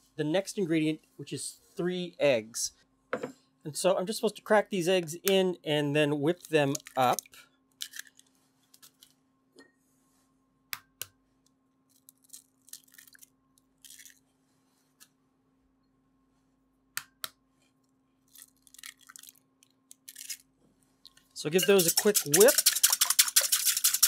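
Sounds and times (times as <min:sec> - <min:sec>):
eggshell crackling: 0:18.3 - 0:20.4, 0:21.5 - 0:24.0
eggshells tapped on bowl: 0:21.6 - 0:24.0.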